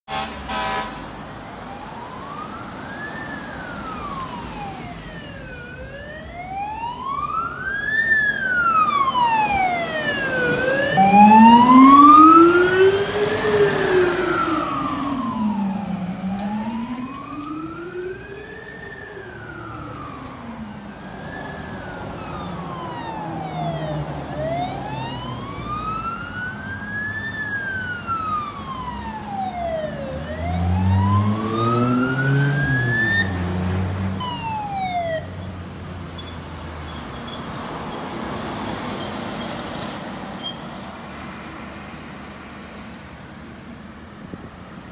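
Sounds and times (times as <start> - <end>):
fire engine siren wailing: 0.1 - 35.5
road traffic passing: 0.1 - 44.9
lower-pitched siren wail: 0.5 - 35.5.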